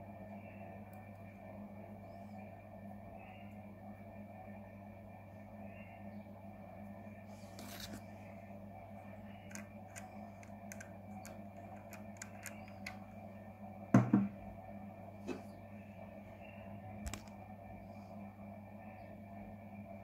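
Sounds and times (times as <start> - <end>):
steady low hum: 0.0 - 20.0
fingers clicking and tapping: 9.5 - 13.0
thump: 14.0 - 14.3.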